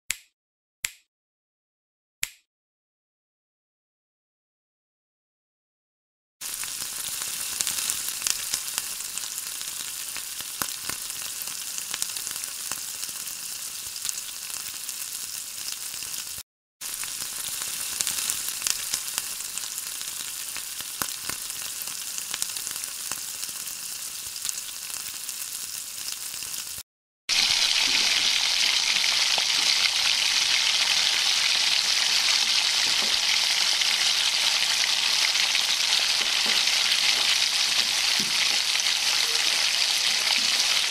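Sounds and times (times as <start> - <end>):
onions sizzling in oil: 6.4 - 40.9.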